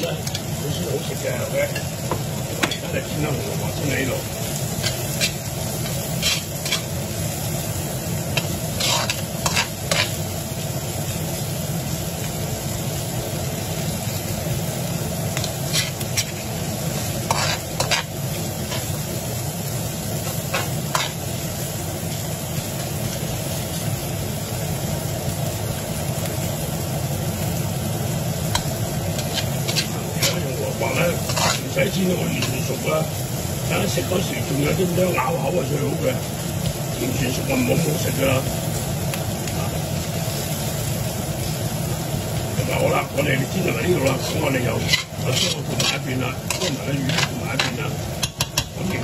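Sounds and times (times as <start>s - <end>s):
food sizzling in a frying pan: 0.0s - 49.0s
metal spoon scraping a pan: 4.7s - 7.0s, 8.4s - 10.2s, 15.4s - 19.0s, 20.2s - 21.3s, 28.6s - 32.8s, 43.6s - 49.0s.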